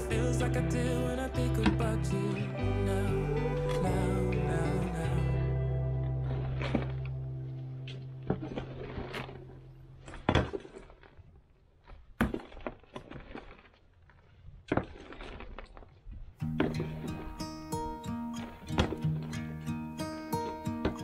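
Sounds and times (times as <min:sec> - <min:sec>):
shovel scraping through soil: 0:11.9 - 0:19.4.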